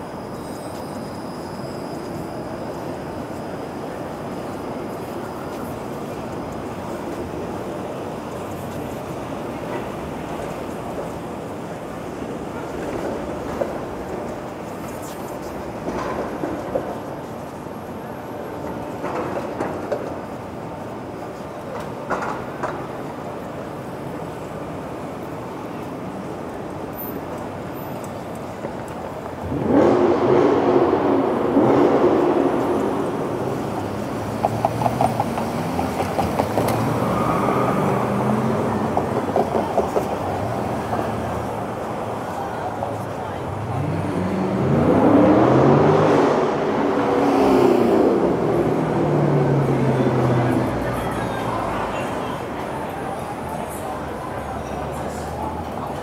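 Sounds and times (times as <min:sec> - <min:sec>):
vehicles passing with low hum: 0:00.0 - 0:56.0
passing vehicles rushing: 0:29.1 - 0:56.0.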